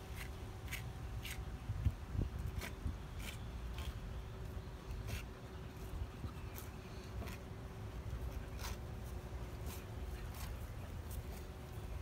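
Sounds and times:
knife scraping and slicing meat: 8.3 - 9.0.

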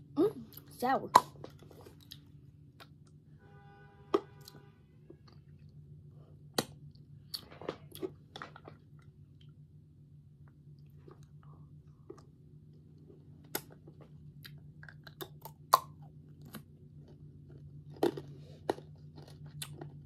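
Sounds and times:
steady low hum: 0.0 - 20.0
crunching hard candy: 13.0 - 20.0.

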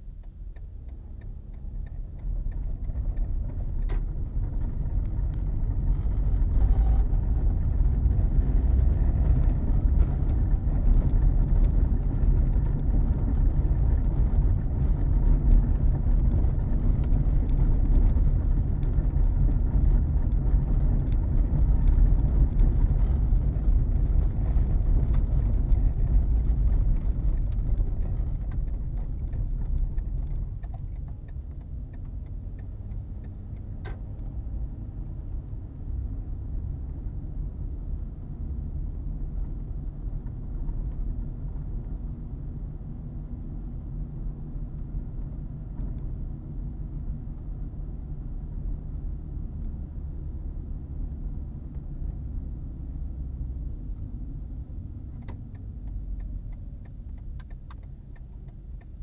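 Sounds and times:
car engine: 0.0 - 59.0
tyres rumbling over cobblestones: 1.6 - 41.8.

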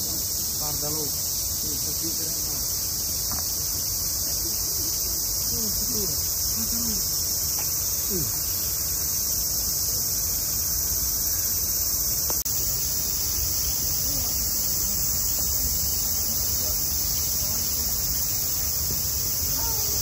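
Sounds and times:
cicadas buzzing: 0.0 - 20.0
faint distant voices: 13.7 - 20.0.

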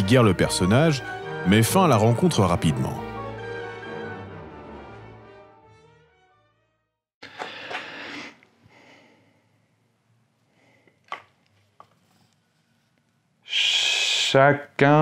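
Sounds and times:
breath into microphone: 7.2 - 9.6.

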